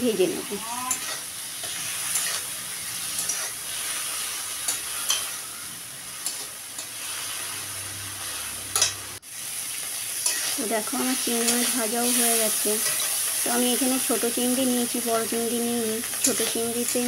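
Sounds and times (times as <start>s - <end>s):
prawns sizzling in hot oil: 0.0s - 17.0s
metal spatula scraping pan: 0.9s - 7.6s, 10.2s - 10.7s.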